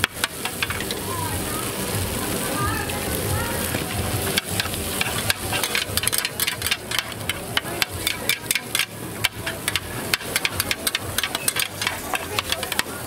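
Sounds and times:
faint sizzle: 0.0 - 13.0
metal spatula scraping a wok: 4.2 - 13.0.

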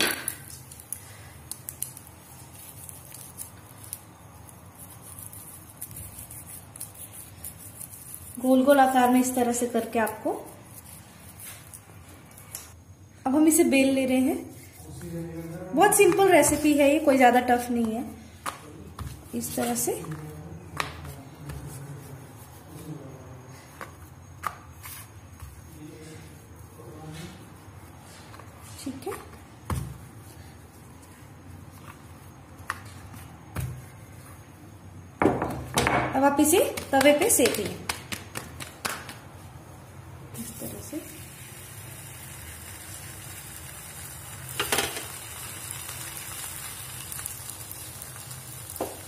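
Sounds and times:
oil crackling on iron griddle: 0.0 - 9.0, 40.4 - 49.0
rolling pin rubbing dough: 2.0 - 12.0, 14.0 - 34.7.

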